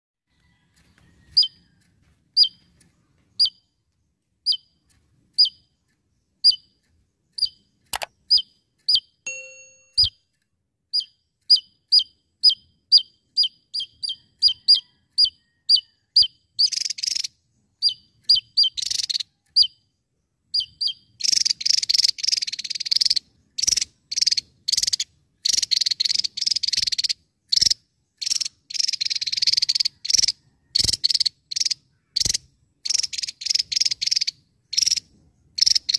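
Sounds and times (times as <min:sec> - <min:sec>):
bird singing with buzzy trills: 0:01.1 - 0:10.3, 0:10.9 - 0:35.9
faint clicks: 0:06.7 - 0:08.1.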